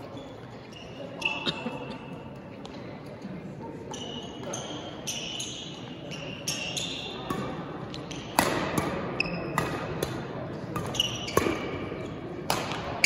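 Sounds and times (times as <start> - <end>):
sneakers squeaking on gym floor: 0.0 - 1.9, 3.8 - 9.9, 10.8 - 12.4
rackets striking shuttlecocks: 6.4 - 13.0.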